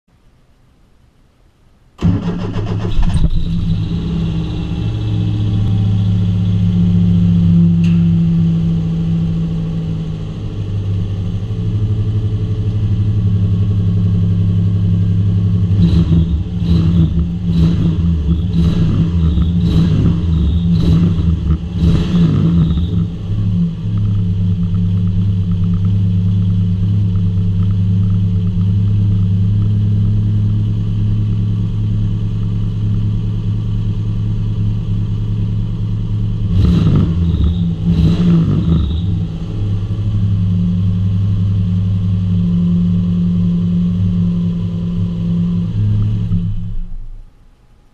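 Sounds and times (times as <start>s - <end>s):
engine throttle blips: 2.0s - 47.4s
car engine idling: 2.0s - 47.9s.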